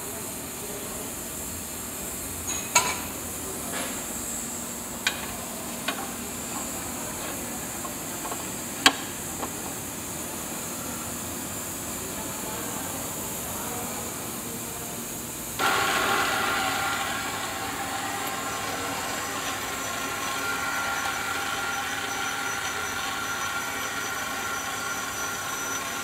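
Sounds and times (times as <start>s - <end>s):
threading machine running: 15.6s - 26.0s.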